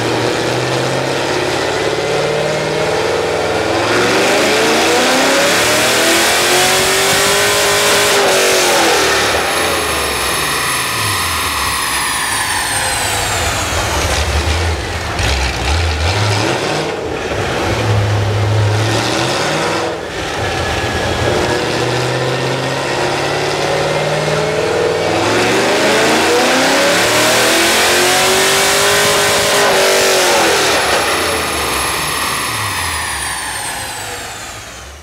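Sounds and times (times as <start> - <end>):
car engine revving on dyno: 0.0 - 35.0
high whine sliding down: 3.9 - 16.0, 18.7 - 35.0.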